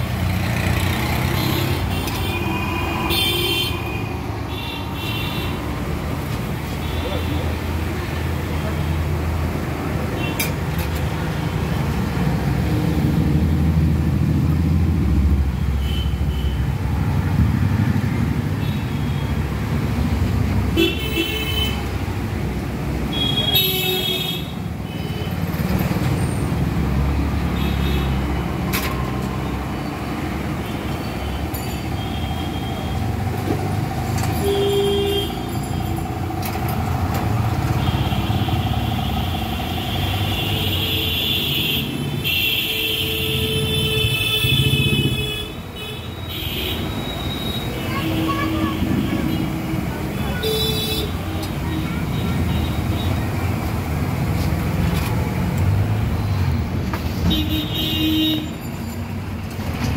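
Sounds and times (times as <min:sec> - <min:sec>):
traffic engines running: 0:00.0 - 0:59.9
car and motorbike horns tooting: 0:00.6 - 0:05.7, 0:30.5 - 0:53.3.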